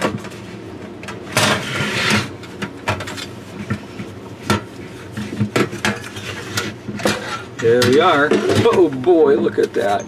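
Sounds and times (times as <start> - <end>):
metal cover scraping: 1.3 - 3.3, 4.6 - 10.0.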